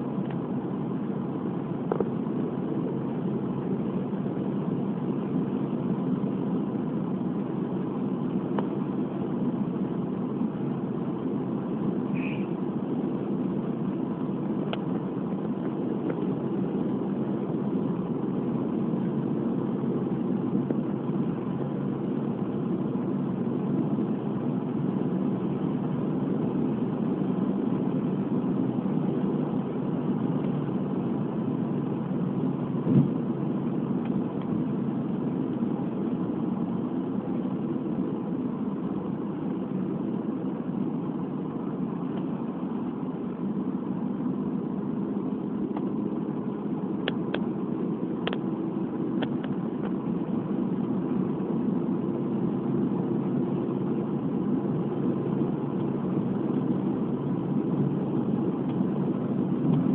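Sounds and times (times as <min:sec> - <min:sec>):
car engine hum: 0:00.0 - 0:59.9
tyre and road noise: 0:00.0 - 0:59.9
short thump: 0:32.8 - 0:33.2.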